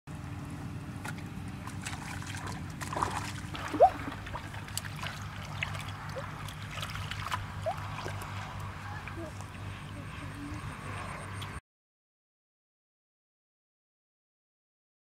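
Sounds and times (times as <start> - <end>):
low steady hum: 0.1 - 11.6
water splashes and plops: 1.0 - 9.8
hands sloshing in muddy water: 1.0 - 10.2.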